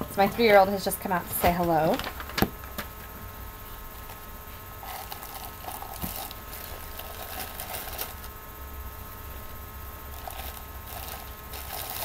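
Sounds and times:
plastic wrapping crinkling: 1.3s - 2.9s, 4.8s - 8.3s, 10.1s - 12.0s.

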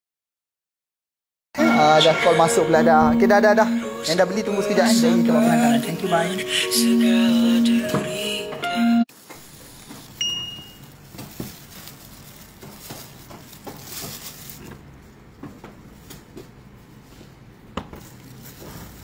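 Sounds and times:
short high ding: 10.2s - 10.8s.

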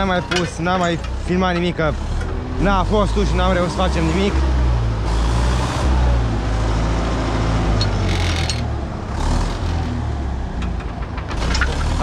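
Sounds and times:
harrow discs rattling and clanking: 0.0s - 2.5s, 10.4s - 12.0s
tractor diesel engine running: 0.0s - 12.0s.

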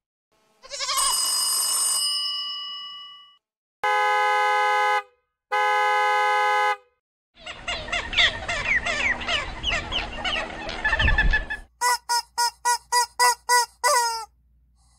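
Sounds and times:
car horn honking: 3.8s - 7.0s
many birds squawking: 7.4s - 11.7s.

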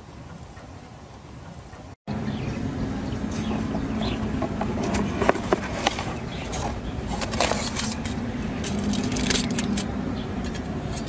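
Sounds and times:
steady low hum: 2.1s - 11.0s.

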